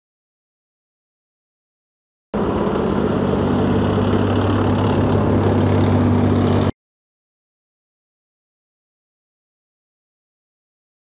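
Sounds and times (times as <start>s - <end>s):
heavy vehicle engine running: 2.4s - 6.7s.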